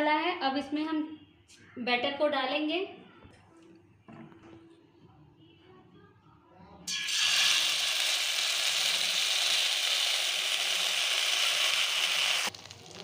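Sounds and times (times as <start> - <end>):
batter sizzling in hot oil: 6.9 - 13.0.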